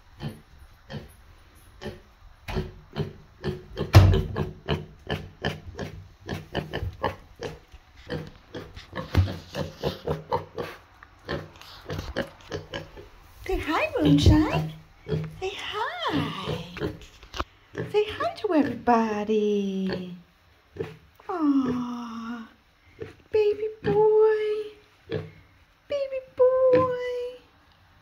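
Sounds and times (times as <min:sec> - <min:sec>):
piglet grunting: 0:01.8 - 0:13.1, 0:13.9 - 0:17.1.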